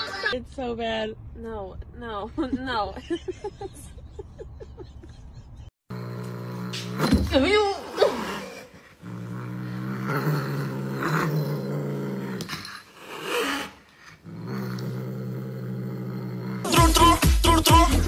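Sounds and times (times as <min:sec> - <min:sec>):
cat growling: 0:05.9 - 0:16.8.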